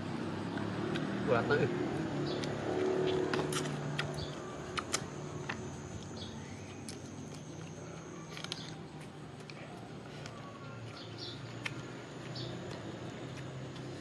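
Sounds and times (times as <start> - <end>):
sharp small clicks: 3.2 - 9.6.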